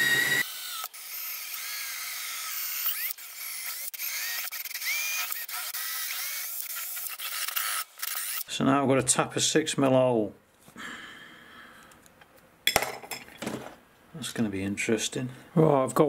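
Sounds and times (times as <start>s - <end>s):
cordless drill whining: 0.0s - 8.4s.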